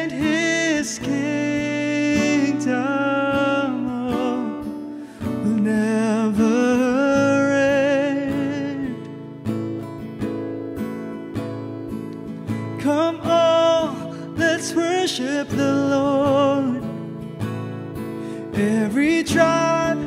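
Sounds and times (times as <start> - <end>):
man singing: 0.0 - 9.2, 12.8 - 17.2, 18.4 - 20.0
strummed acoustic guitar: 0.0 - 20.0.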